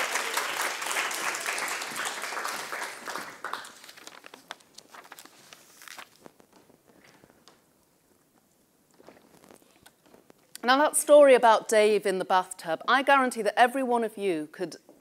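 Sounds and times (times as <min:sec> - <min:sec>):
audience applause: 0:00.0 - 0:04.1.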